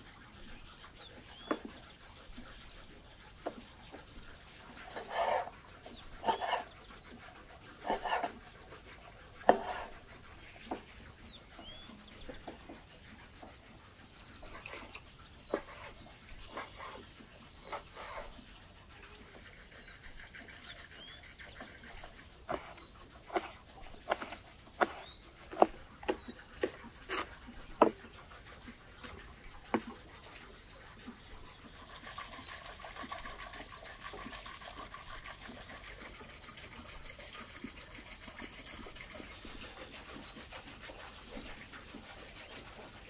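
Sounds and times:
small birds chirping: 0:00.4 - 0:28.0, 0:31.0 - 0:34.2, 0:38.5 - 0:43.0
knife slicing meat: 0:04.8 - 0:05.5, 0:06.1 - 0:06.8, 0:07.8 - 0:08.5, 0:09.4 - 0:10.9, 0:21.6 - 0:28.0.

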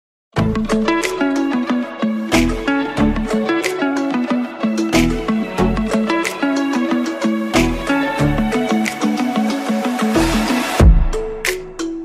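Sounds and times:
plucked notes over a beat: 0:00.4 - 0:12.0.

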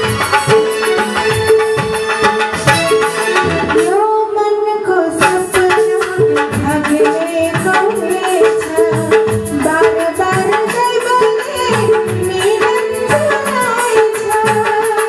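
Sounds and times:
hand drum rhythm: 0:00.0 - 0:04.0, 0:05.2 - 0:15.0
woman singing into a microphone: 0:03.6 - 0:15.0.

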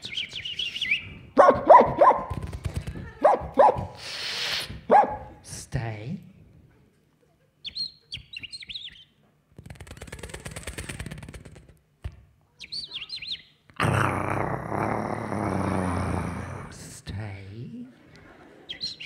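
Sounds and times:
person imitating bird chirps: 0:12.6 - 0:14.0.

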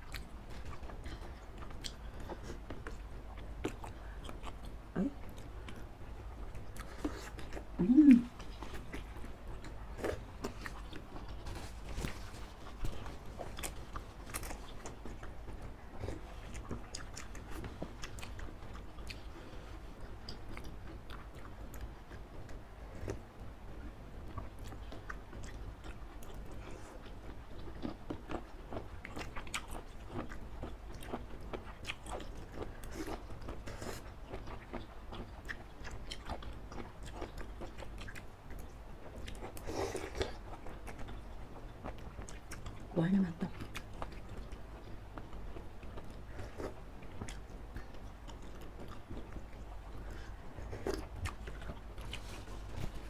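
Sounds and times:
chewing with wet mouth clicks: 0:00.0 - 0:07.7, 0:12.8 - 0:19.3, 0:24.2 - 0:42.9, 0:43.5 - 0:52.4.

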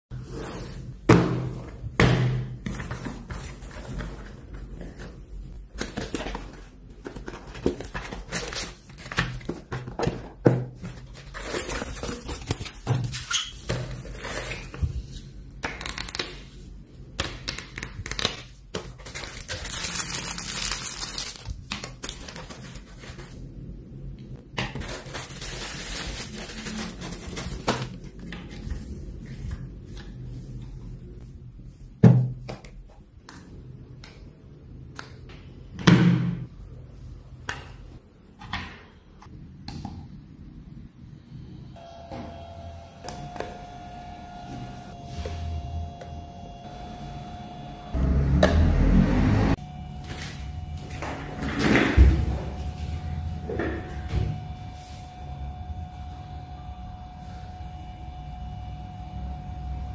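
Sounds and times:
packaging rustling and crinkling: 0:02.7 - 0:15.1, 0:18.8 - 0:23.4, 0:24.7 - 0:29.2.

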